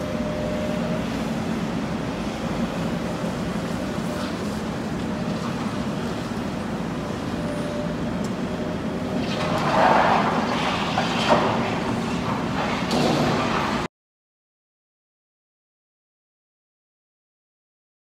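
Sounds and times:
demolition machinery engines running: 0.0 - 13.9.

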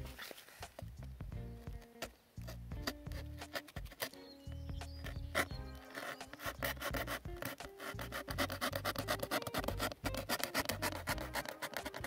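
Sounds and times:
knife blade sawing through cardboard: 2.8 - 4.2, 5.1 - 12.0.

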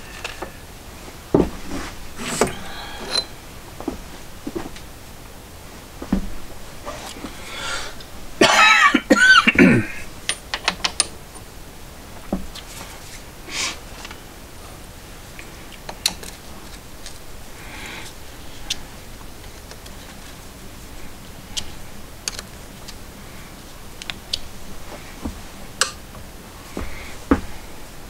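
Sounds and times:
man coughing: 8.4 - 10.1.

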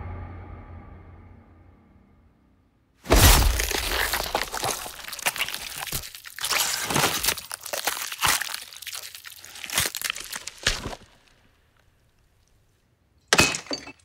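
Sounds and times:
objects crashing and smashing: 3.1 - 8.8, 13.3 - 14.0.

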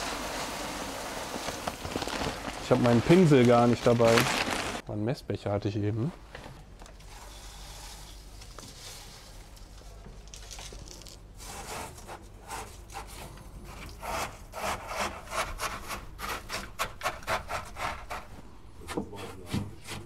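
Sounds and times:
hand scraping gritty granules: 1.0 - 4.8
granules trickling from a cup: 7.0 - 11.4.

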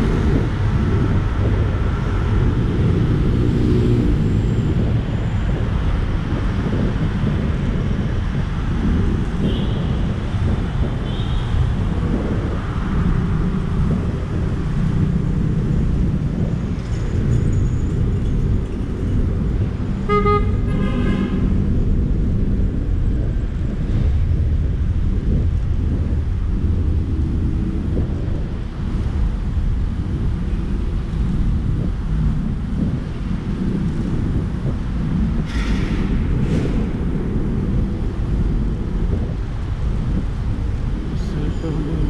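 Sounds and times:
city traffic noise: 0.0 - 42.0
wind buffeting microphone: 0.0 - 42.0
horn tooting: 20.1 - 21.5.

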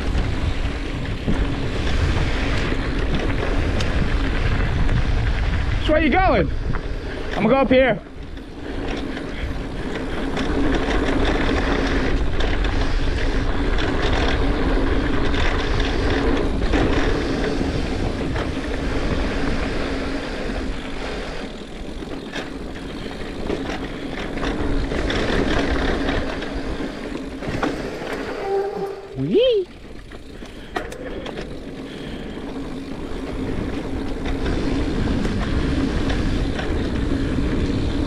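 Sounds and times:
bike tyre noise on dirt: 0.0 - 38.0
wind rumbling on microphone: 0.0 - 38.0.

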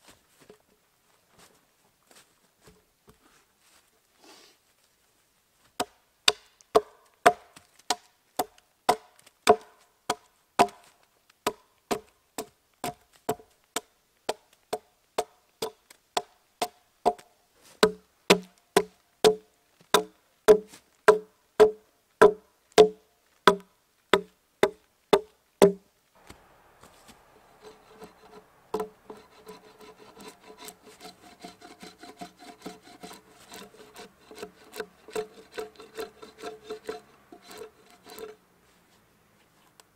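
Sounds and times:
axe chopping log: 5.8 - 26.9, 27.6 - 38.2
rasping wood smoothing: 26.2 - 38.4.

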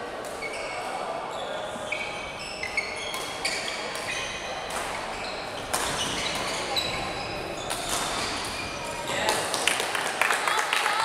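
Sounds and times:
shoes squeaking on court floor: 0.2 - 9.3
rackets hitting shuttlecock: 3.0 - 6.7, 7.6 - 9.4.

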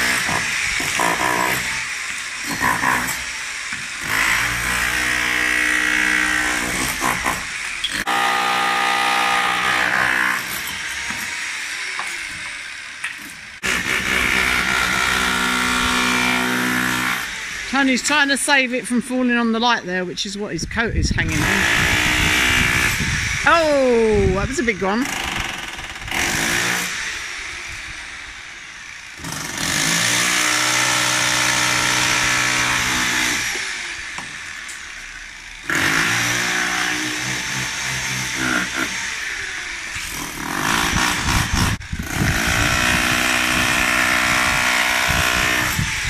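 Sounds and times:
power tool breaking concrete: 0.0 - 17.8, 21.3 - 23.4, 24.9 - 46.0.

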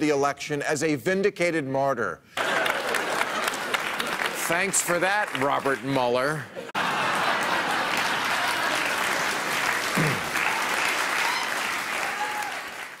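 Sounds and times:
audience applauding and cheering: 2.4 - 13.0.

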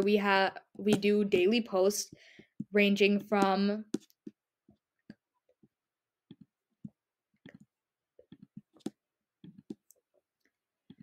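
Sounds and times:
computer clicks and taps: 2.4 - 4.4, 6.3 - 10.0.

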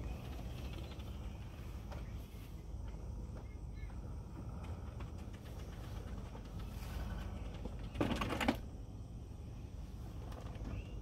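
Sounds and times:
mower rattling clatter: 0.0 - 1.6, 4.6 - 8.7.

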